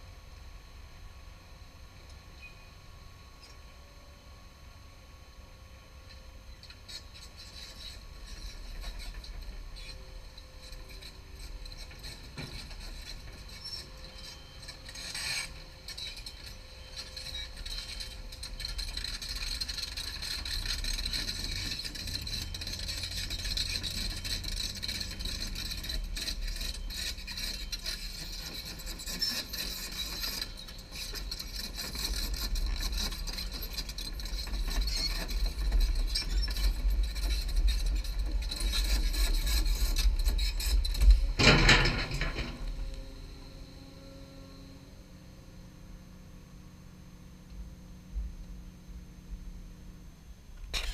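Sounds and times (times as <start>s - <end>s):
excavator tracks scraping and rattling: 6.1s - 45.3s, 50.6s - 50.9s
excavator engine running: 6.4s - 50.9s.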